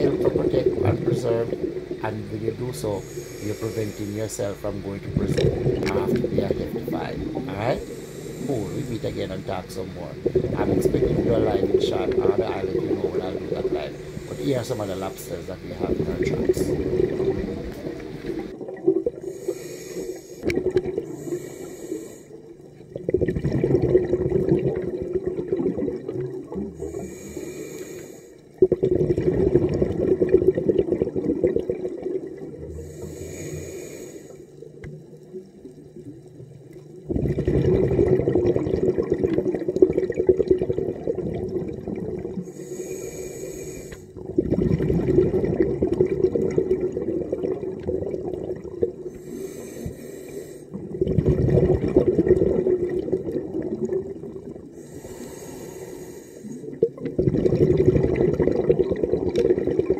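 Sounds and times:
exhaust bubbles rushing: 0.0 - 19.4, 20.4 - 21.3, 22.8 - 27.0, 28.6 - 32.7, 37.0 - 42.5, 44.1 - 49.1, 50.7 - 54.7, 56.7 - 59.9
regulator inhale hiss: 2.8 - 4.6, 7.8 - 9.5, 13.9 - 15.0, 19.2 - 22.6, 26.8 - 28.6, 32.7 - 34.7, 42.4 - 44.2, 49.0 - 50.8, 54.7 - 56.8.

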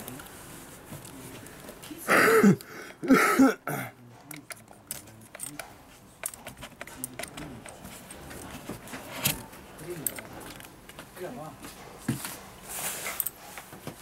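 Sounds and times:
hands clicking plastic parts: 4.2 - 8.6.

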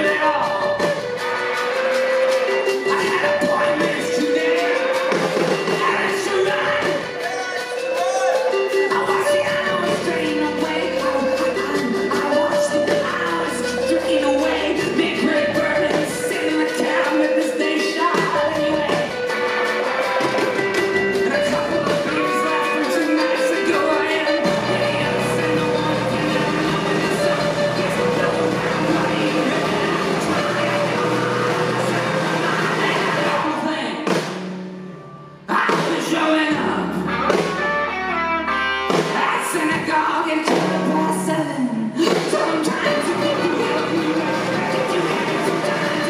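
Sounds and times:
person singing: 0.0 - 34.2, 35.4 - 46.0
electric guitar: 0.0 - 46.0
live rock band playing: 0.0 - 46.0.

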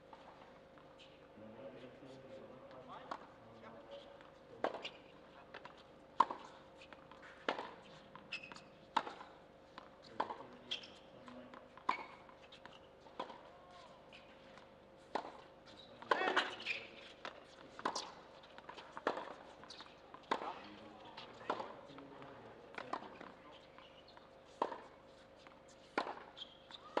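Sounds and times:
tennis ball bouncing: 4.6 - 27.0
racket hitting tennis ball: 15.1 - 23.6, 24.5 - 25.0, 25.8 - 27.0.

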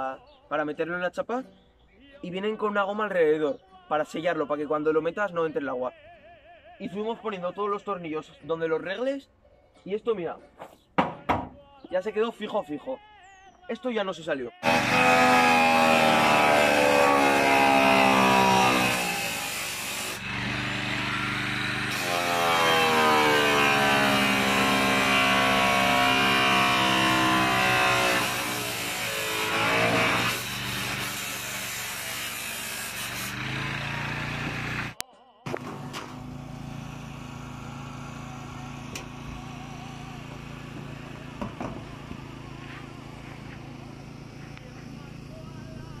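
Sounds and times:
angle grinder cutting metal: 14.6 - 46.0
motor humming: 33.3 - 46.0.

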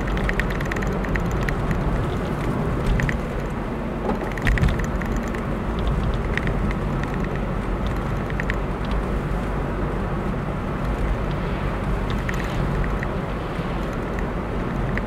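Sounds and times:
car road and engine noise: 0.0 - 15.0
light ticking rattles: 0.0 - 15.0.

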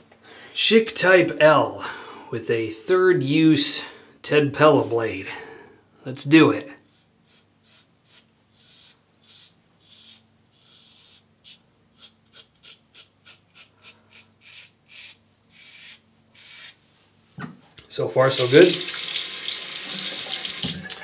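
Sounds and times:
razor scraping stubble: 6.8 - 16.8.

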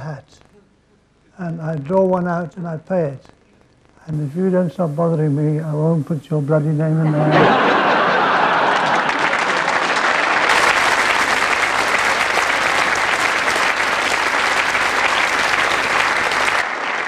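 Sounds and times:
audience applauding: 7.3 - 17.0.

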